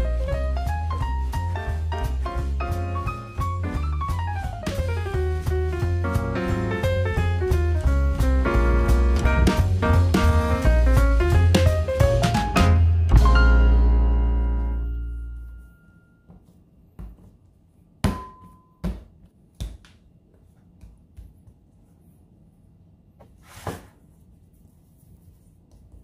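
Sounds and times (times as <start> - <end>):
music track chord: 12.3 - 15.8
dough handled on countertop: 23.2 - 26.0.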